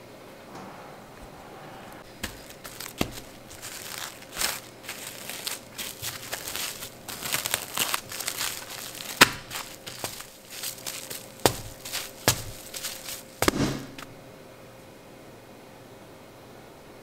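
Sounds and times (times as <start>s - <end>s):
plastic cling wrap crinkling: 2.0s - 14.1s.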